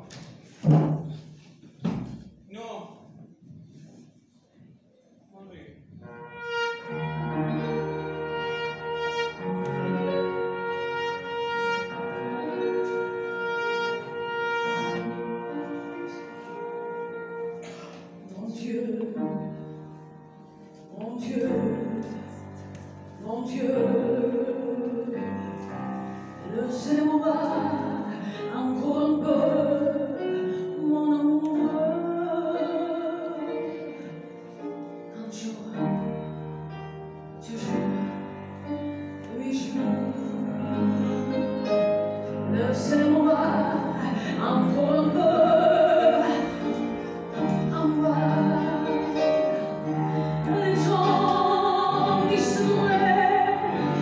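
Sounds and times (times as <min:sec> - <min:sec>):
live band with piano: 0:00.0 - 0:02.5, 0:05.9 - 0:54.0
woman singing with vibrato: 0:18.2 - 0:19.6, 0:20.9 - 0:22.4, 0:23.2 - 0:25.6, 0:26.4 - 0:34.1, 0:37.4 - 0:38.3, 0:39.3 - 0:41.4, 0:42.4 - 0:54.0.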